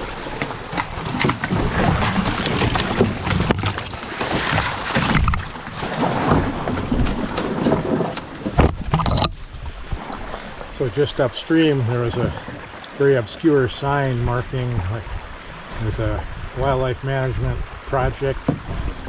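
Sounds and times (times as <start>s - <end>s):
rushing water: 0.0s - 19.0s
wind buffeting microphone: 13.8s - 19.0s.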